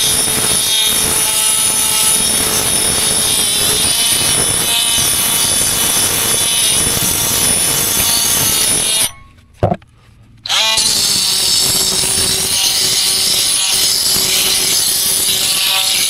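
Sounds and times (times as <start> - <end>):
multi-tool grinding mortar: 0.0 - 9.8, 10.5 - 16.0
knock: 9.6 - 9.8.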